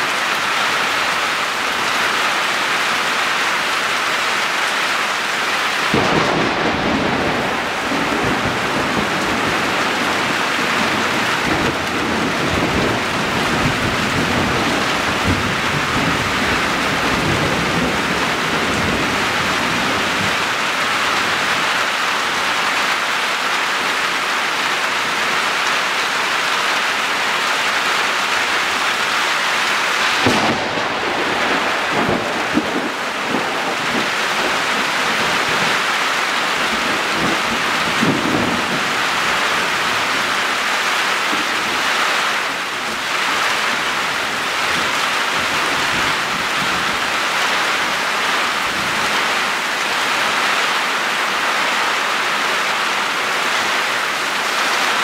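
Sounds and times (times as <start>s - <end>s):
heavy rain hissing: 0.0s - 55.0s
thunder cracking and rolling: 5.9s - 20.5s, 30.0s - 40.0s.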